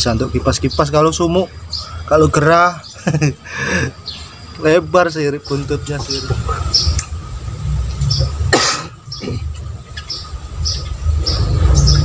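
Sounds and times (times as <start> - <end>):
bird chirping: 0.0 - 12.0
steady low rumble: 0.0 - 12.0
person coughing: 8.5 - 9.5.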